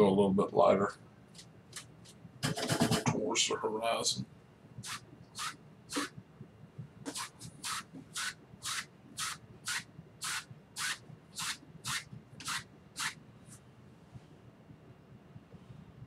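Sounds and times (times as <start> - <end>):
paintbrush strokes on canvas: 7.1 - 13.6.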